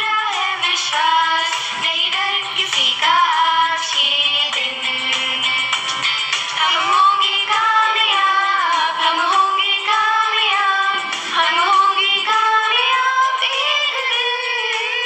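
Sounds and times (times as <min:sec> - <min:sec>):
woman singing prayer song: 0:00.0 - 0:05.6, 0:06.6 - 0:15.0.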